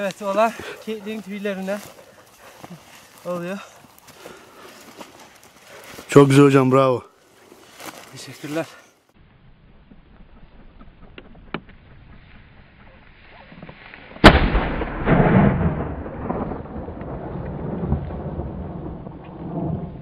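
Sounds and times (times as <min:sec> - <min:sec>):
shotgun shot with rumbling echo: 0:14.2 - 0:19.8.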